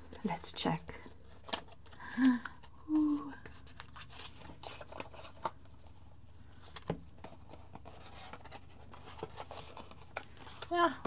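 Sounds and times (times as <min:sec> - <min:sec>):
faint paper rustles: 0:00.0 - 0:11.0.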